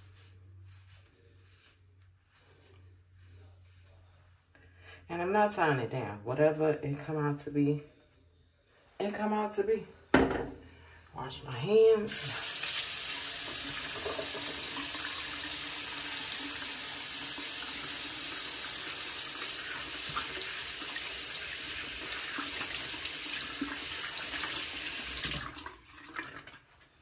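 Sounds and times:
tap running into a sink: 0:13.3 - 0:15.4, 0:20.0 - 0:20.5.

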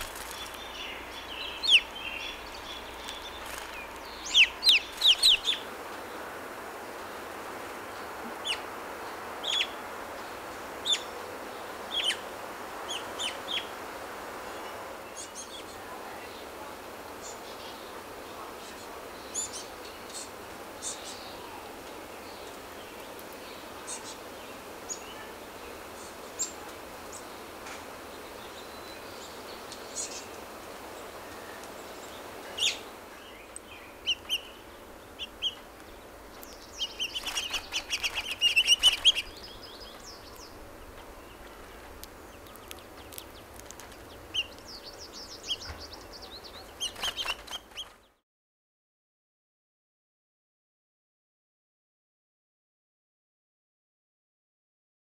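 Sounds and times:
finches chirping: 0:00.0 - 0:05.7, 0:31.0 - 0:48.2
steady outdoor hiss: 0:00.0 - 0:48.2.

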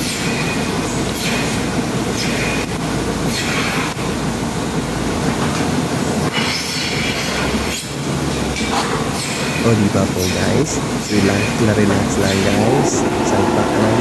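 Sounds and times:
air hisses: 0:00.0 - 0:04.2
milking machinery running: 0:00.0 - 0:14.0
rotary platform rolling rumble: 0:00.0 - 0:14.0
metallic squealing: 0:06.3 - 0:14.0.

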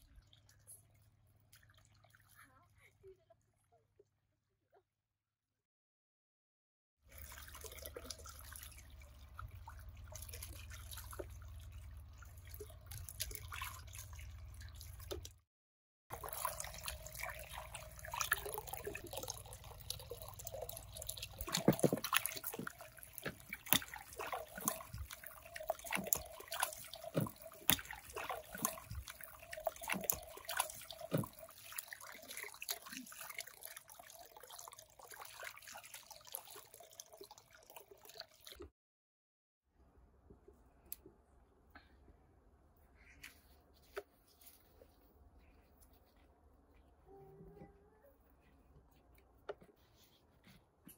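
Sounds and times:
water trickling and dripping: 0:00.0 - 0:03.3, 0:07.1 - 0:15.4, 0:16.1 - 0:38.7.

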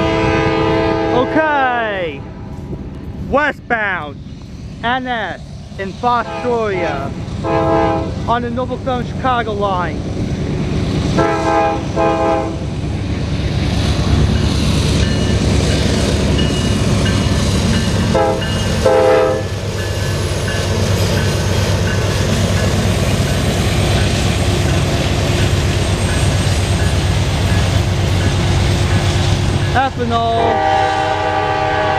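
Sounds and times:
locomotive horn blasts: 0:00.0 - 0:01.6, 0:06.2 - 0:08.2, 0:11.2 - 0:12.6, 0:18.1 - 0:19.5, 0:30.3 - 0:31.9
freight train rumbling past: 0:00.0 - 0:31.9.

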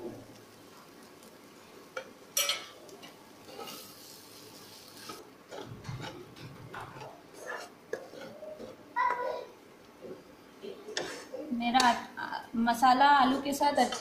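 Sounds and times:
faint sizzling: 0:00.0 - 0:14.0
spatula scraping a pan: 0:03.4 - 0:08.8.

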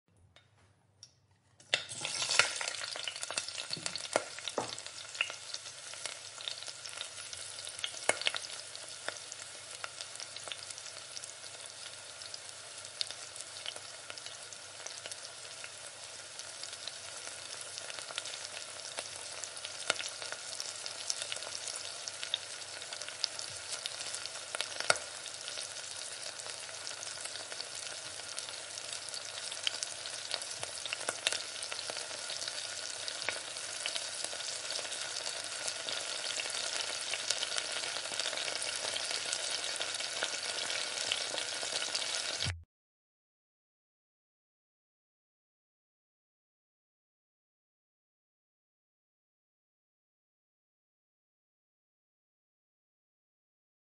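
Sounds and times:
metal utensil scraping a pan: 0:01.4 - 0:03.2
vegetables sizzling in a pan: 0:01.7 - 0:42.6.

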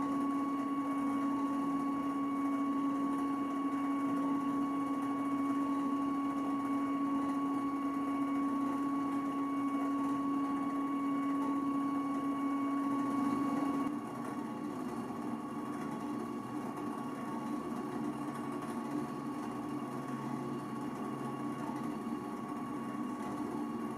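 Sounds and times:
stepper motor hum and whine: 0:00.0 - 0:14.0.

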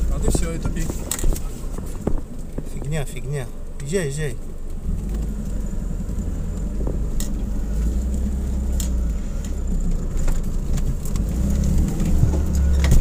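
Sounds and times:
engine rumbling at low revs: 0:00.0 - 0:13.0
vehicle knocks and rattles: 0:00.0 - 0:13.0.

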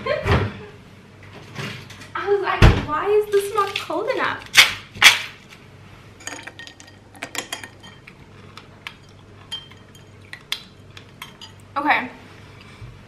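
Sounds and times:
ice and spoon clinking on glass bowl: 0:06.2 - 0:08.2, 0:09.0 - 0:10.4.

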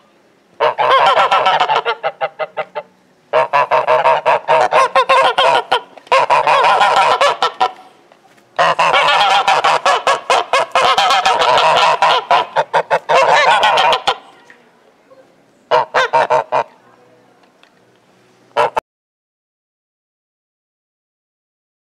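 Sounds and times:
geese honking: 0:00.6 - 0:07.9, 0:08.6 - 0:14.4, 0:15.7 - 0:16.8, 0:18.5 - 0:18.8.

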